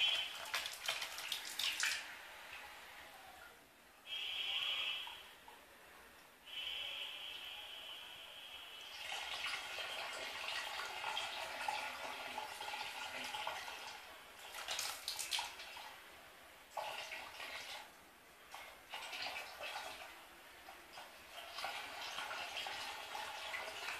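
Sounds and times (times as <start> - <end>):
water jet splashing on tiles: 0.0 - 2.0, 14.4 - 15.8
water sloshing in plastic basin: 0.0 - 2.1, 14.4 - 15.9.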